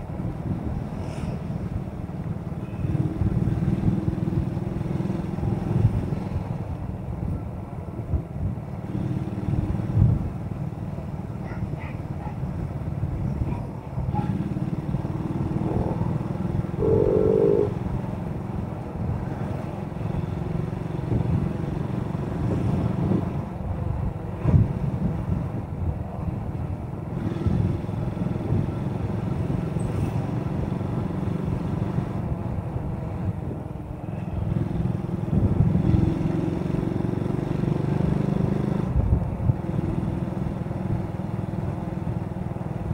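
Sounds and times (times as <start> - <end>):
road and wind rumble: 0.0 - 42.9
motorcycle engine running: 14.2 - 17.9
brief high-pitched tone: 16.8 - 17.8.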